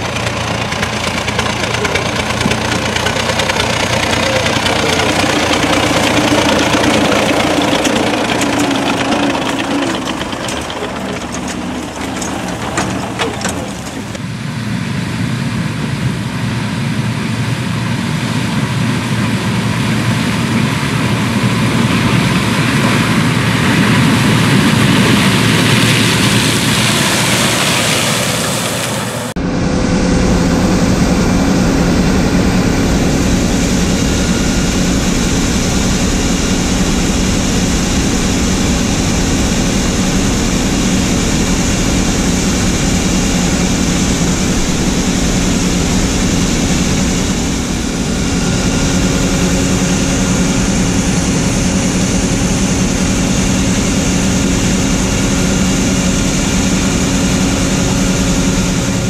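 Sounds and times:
auger pouring corn into trailer: 0.0s - 14.3s
combine harvester engine running: 0.0s - 59.0s
tractor diesel engine running: 0.0s - 59.0s.

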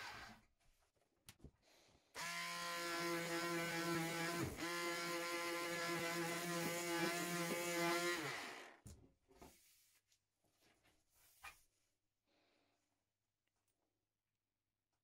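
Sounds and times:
power tool grinding rusty steel: 2.2s - 8.8s.

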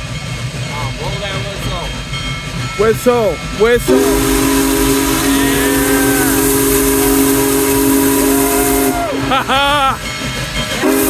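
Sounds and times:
steady steam hiss: 0.0s - 11.0s
steam whistle: 3.9s - 9.5s, 10.8s - 11.0s
people shouting and cheering: 5.1s - 10.0s.

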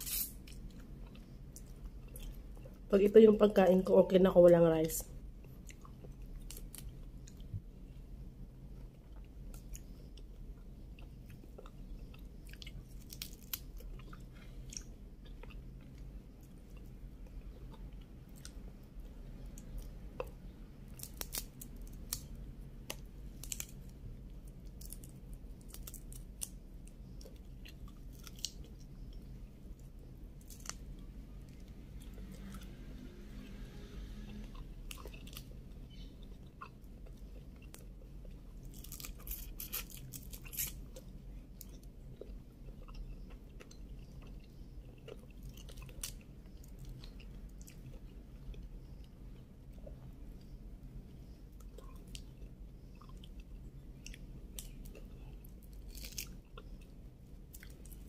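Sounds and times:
steady low hum: 0.0s - 58.0s
chewing: 8.8s - 18.6s, 34.3s - 50.5s
shrimp shells cracking: 21.0s - 22.3s.

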